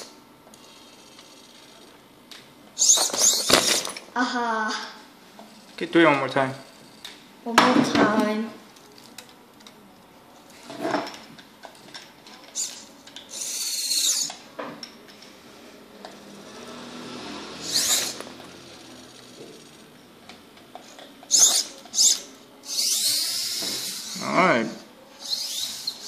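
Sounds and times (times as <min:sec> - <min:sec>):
small electric motors whining: 0:00.0 - 0:02.0, 0:02.8 - 0:04.0, 0:11.9 - 0:14.4, 0:16.0 - 0:20.1, 0:20.7 - 0:26.0.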